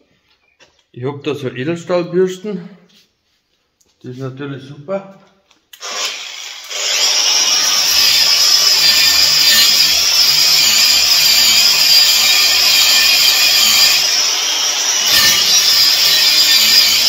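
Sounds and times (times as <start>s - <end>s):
wire brush grinder on steel: 5.8s - 17.0s.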